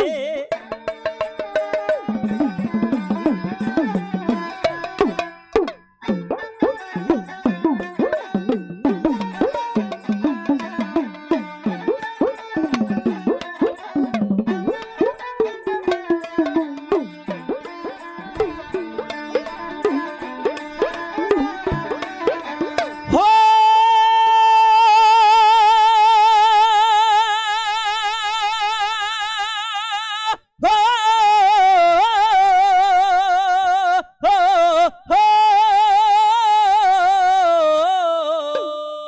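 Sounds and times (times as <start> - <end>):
person singing with vibrato: 0.0 - 0.6, 22.9 - 39.0
hand drum: 0.0 - 23.4
sarangi: 0.0 - 39.0.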